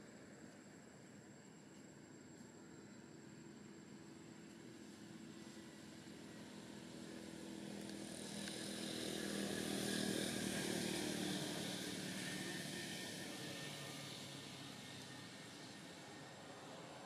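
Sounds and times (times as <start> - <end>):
passing engine drone: 4.8 - 17.0.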